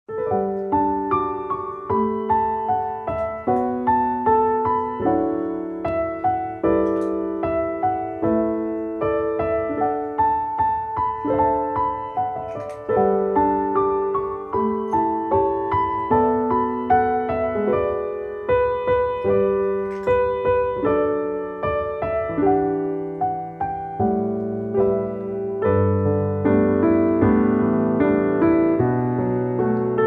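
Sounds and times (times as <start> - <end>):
piano music: 0.0 - 30.0.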